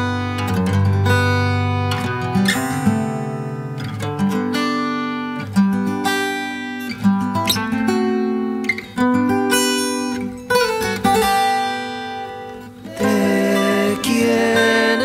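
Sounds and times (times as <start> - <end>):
acoustic guitar strumming chords: 0.0 - 15.0.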